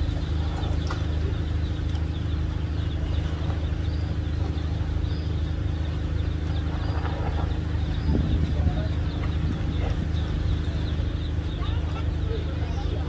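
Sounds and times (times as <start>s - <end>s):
low hum of ship machinery: 0.0s - 13.0s.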